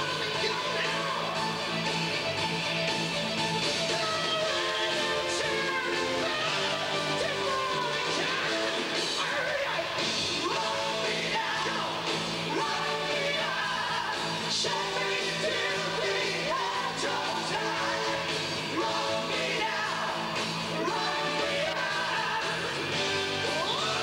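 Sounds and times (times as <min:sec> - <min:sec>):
man singing lead vocal: 0:00.0 - 0:01.6, 0:03.9 - 0:24.0
hard rock band playing live: 0:00.0 - 0:24.0.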